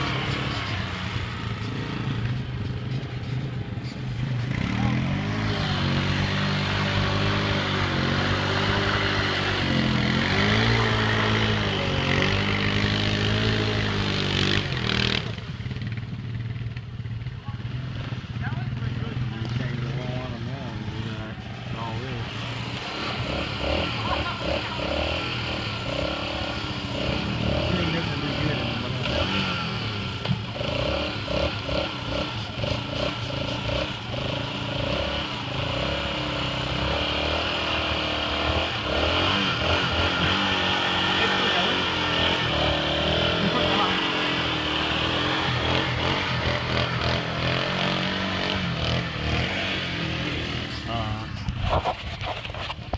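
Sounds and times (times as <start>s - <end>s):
atv engine running: 0.0s - 52.9s
wheels churning through mud: 17.7s - 52.9s.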